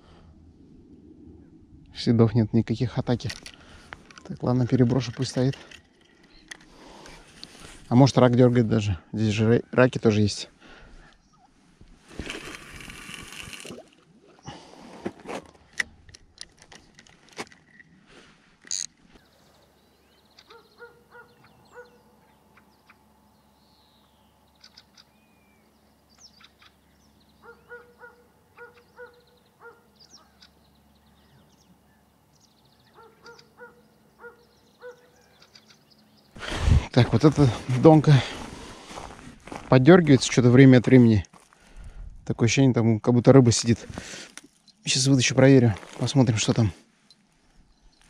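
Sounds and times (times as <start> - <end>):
birds calling: 3.5 - 7.8, 9.2 - 11.6, 18.7 - 39.6
small birds chirping: 6.1 - 7.7, 11.0 - 11.6, 19.1 - 36.5
reel handling clicks: 18.6 - 19.0.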